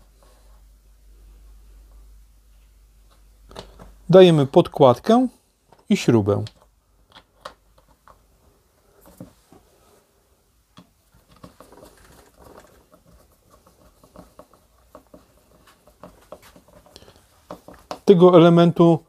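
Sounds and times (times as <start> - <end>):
faint clicks of metal parts: 5.6 - 9.7, 10.7 - 18.2.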